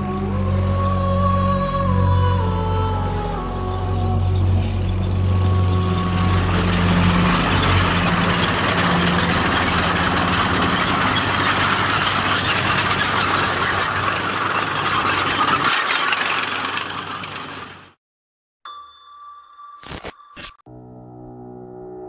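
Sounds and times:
tank engine rumble: 0:00.1 - 0:18.0
steel tracks clattering: 0:04.9 - 0:18.0.

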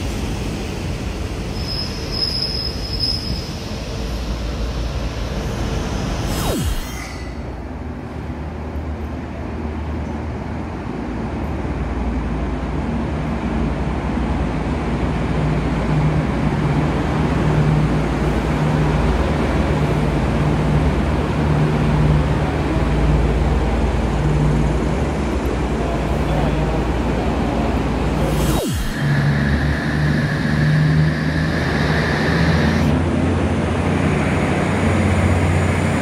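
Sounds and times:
diesel train engines humming: 0:00.0 - 0:06.2, 0:07.4 - 0:36.0.

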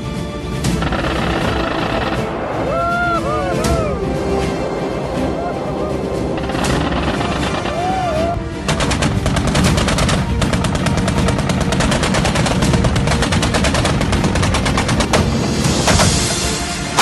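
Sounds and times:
music track: 0:00.0 - 0:17.0
rapid automatic gunfire: 0:00.8 - 0:02.3, 0:08.6 - 0:15.1.

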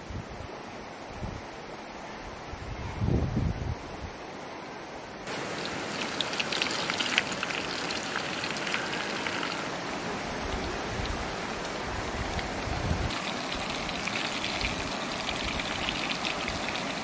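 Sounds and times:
rain drops pattering: 0:05.3 - 0:17.0.

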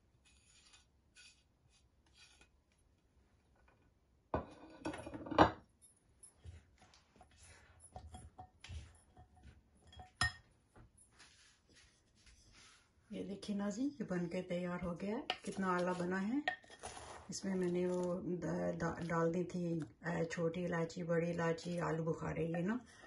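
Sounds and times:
spoon scraping glass bowl: 0:00.2 - 0:02.5, 0:15.3 - 0:18.1.

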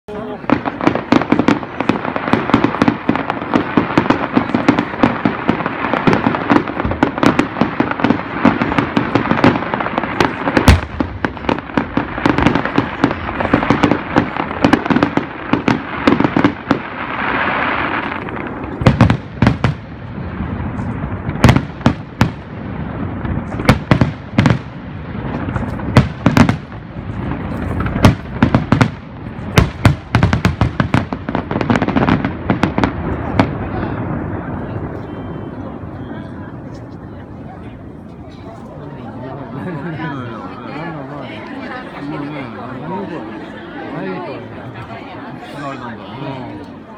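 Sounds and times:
fireworks crackling: 0:00.1 - 0:46.9
fireworks hissing: 0:00.2 - 0:34.2
firework shells booming: 0:00.4 - 0:36.9.

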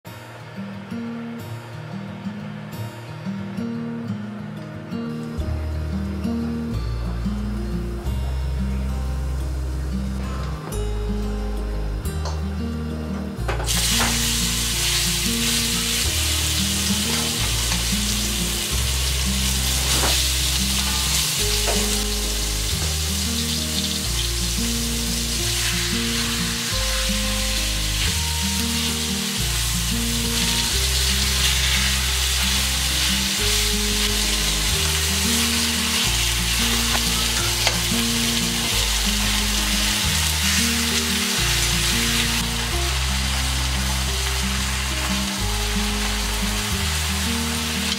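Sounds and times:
background music with bass line: 0:02.7 - 0:47.9
food sizzling in a pan: 0:13.7 - 0:47.9.

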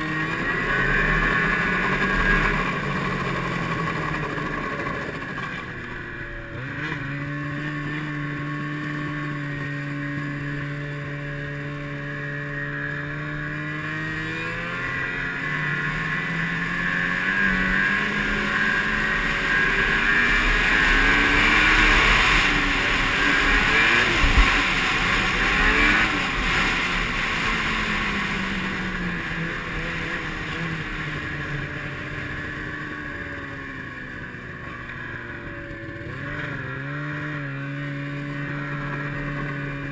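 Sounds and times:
steady rushing noise: 0:00.0 - 0:36.0
snowmobile engine: 0:00.0 - 0:39.9.

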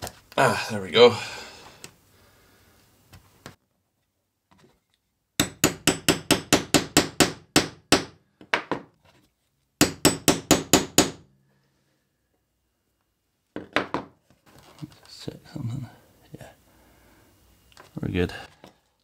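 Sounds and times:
hammer tapping metal punch: 0:09.8 - 0:11.2.

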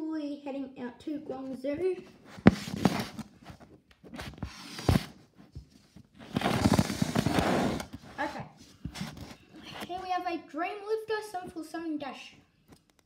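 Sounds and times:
rustling and shuffling: 0:01.3 - 0:10.3.

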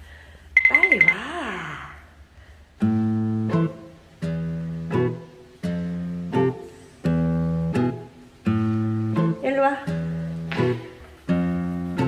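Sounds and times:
guitar chords strummed: 0:02.9 - 0:09.4.

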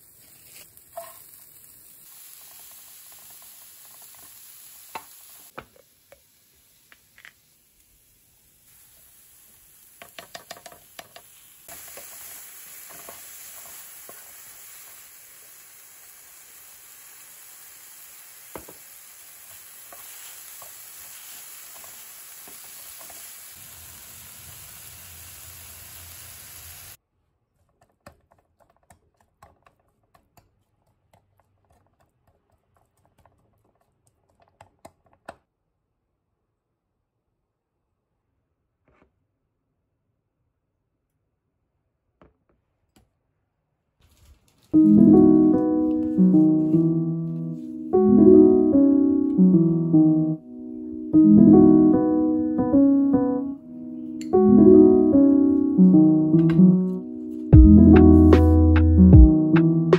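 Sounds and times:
bean sprouts sizzling in a pan: 0:00.0 - 0:27.0, 0:44.2 - 0:46.9.

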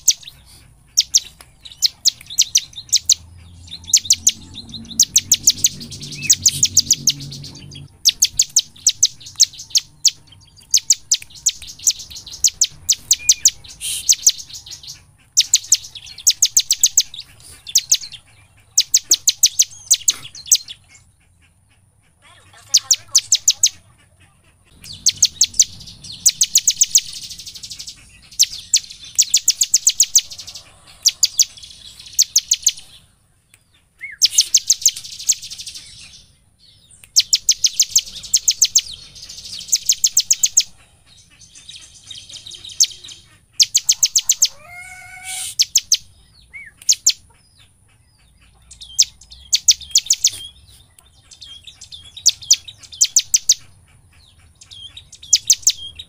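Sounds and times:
lower sliding bird call: 0:00.0 - 0:09.9, 0:10.7 - 0:18.2, 0:24.7 - 0:33.0, 0:34.0 - 0:36.0, 0:42.6 - 0:46.0
bird singing sharp high notes: 0:00.0 - 0:20.9, 0:22.6 - 0:23.8, 0:24.7 - 0:33.1, 0:34.0 - 0:47.2.

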